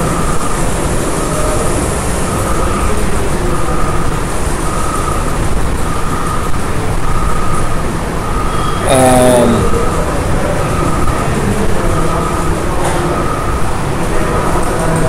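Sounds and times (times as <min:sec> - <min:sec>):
loud bassy background noise: 0:08.8 - 0:12.9.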